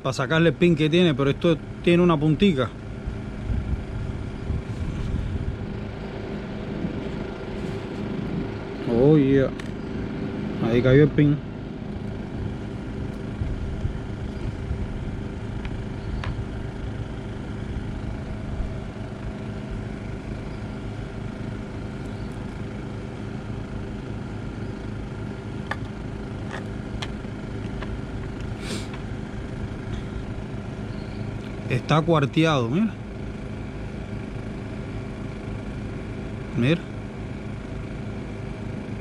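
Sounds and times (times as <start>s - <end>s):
motor humming: 0.5s - 39.0s.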